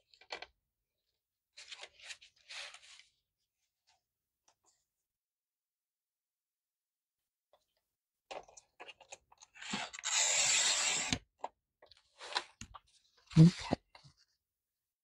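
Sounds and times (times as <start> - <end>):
paper sliding: 9.7 - 11.2.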